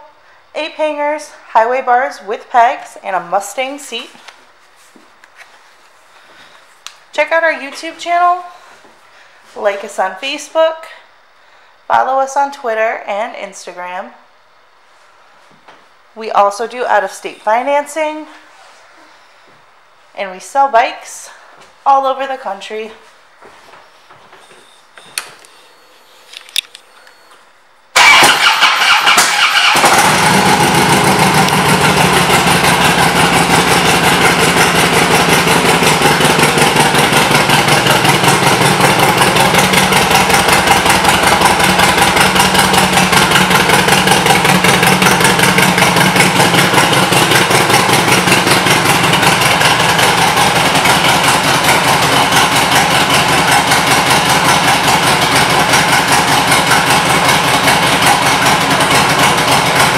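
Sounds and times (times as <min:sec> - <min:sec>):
motorcycle engine starting and idling: 0:27.9 - 0:59.9.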